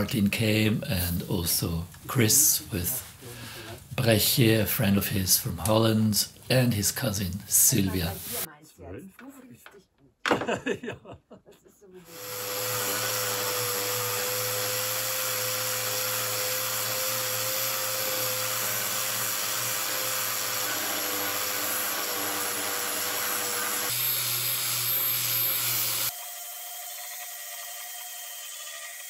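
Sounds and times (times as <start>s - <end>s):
electric motor whining: 12.1s - 26.3s.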